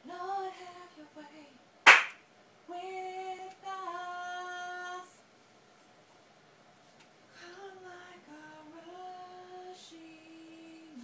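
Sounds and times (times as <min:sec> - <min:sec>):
hand clap: 0:01.9 - 0:02.2.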